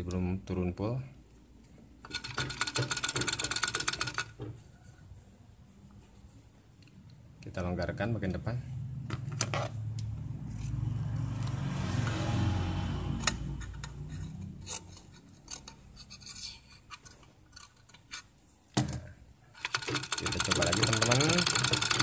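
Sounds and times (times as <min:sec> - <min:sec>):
small clicks and rubbing: 0:13.6 - 0:18.4
sewing machine motor humming: 0:19.7 - 0:22.0.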